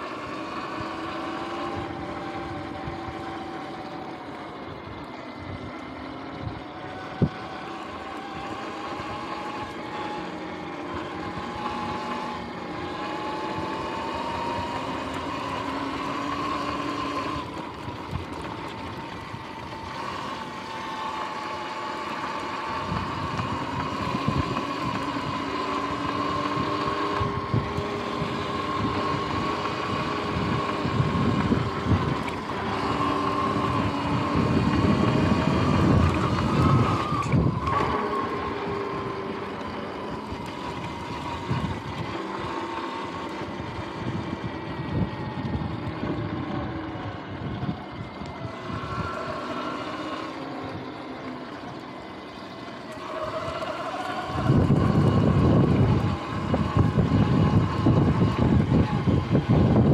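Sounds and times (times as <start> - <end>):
electric motor whine: 0.0 - 59.9
wind rumble: 22.6 - 42.6, 53.1 - 59.9.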